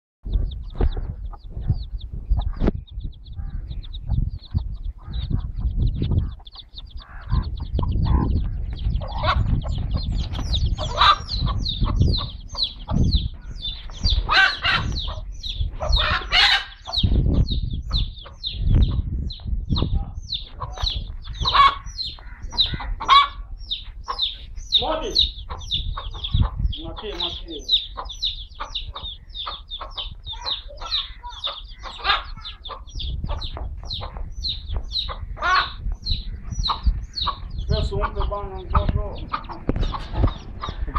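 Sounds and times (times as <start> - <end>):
chicks peeping: 0.2 - 40.9
hen clucking: 0.3 - 40.9
hen squawking: 5.0 - 8.4, 10.8 - 12.6, 13.4 - 15.2, 15.8 - 17.1, 20.6 - 23.5, 24.1 - 33.4, 35.1 - 40.9.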